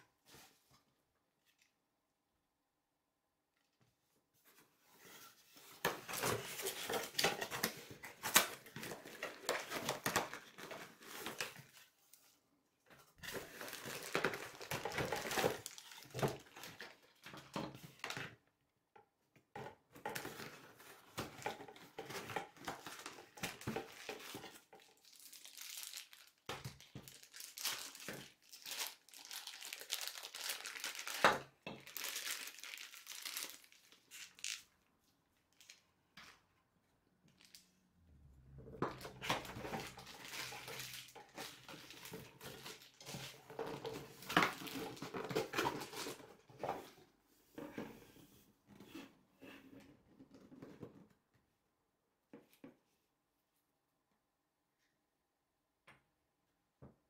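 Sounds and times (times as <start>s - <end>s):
plastic bag crinkling: 13.4s - 16.6s, 23.7s - 34.8s, 38.9s - 46.2s.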